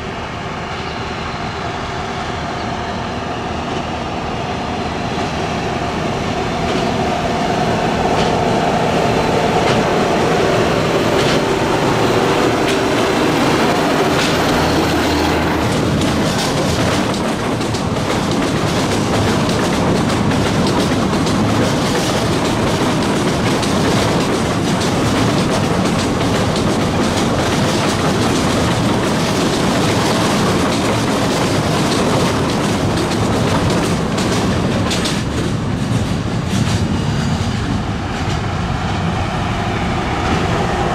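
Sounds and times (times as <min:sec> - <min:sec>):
diesel locomotive engine: 0:00.0 - 0:40.9
wagons rattling over rail joints: 0:11.0 - 0:37.0.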